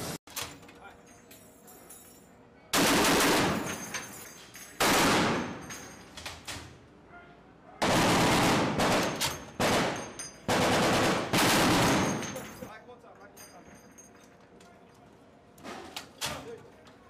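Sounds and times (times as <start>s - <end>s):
heavy machine gun bursts: 2.8s - 3.8s, 7.8s - 12.4s.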